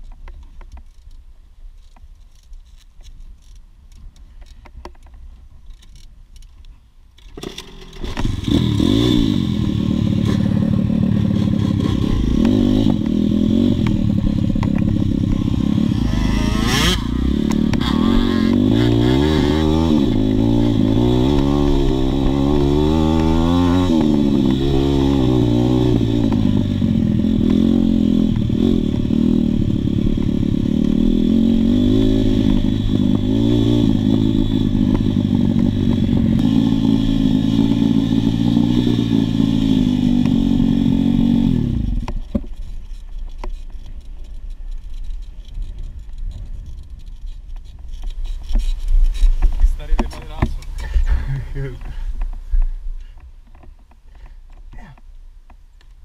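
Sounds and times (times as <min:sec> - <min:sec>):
dirt bike engine revving: 0:07.4 - 0:42.2.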